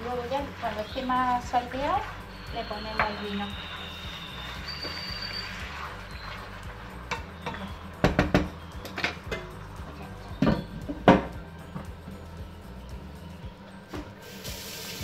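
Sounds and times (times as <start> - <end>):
wooden spoon scraping a pan: 0.1 - 7.6.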